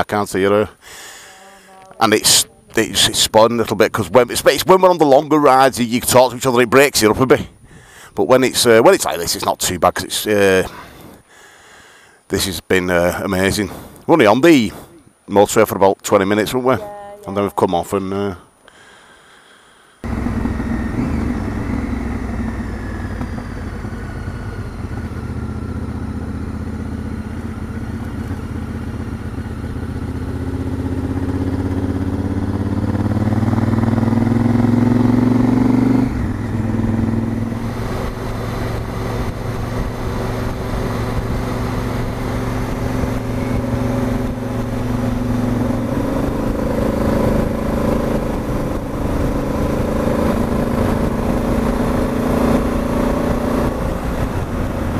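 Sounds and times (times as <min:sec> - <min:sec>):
motorcycle engine accelerating: 0:20.0 - 0:54.9.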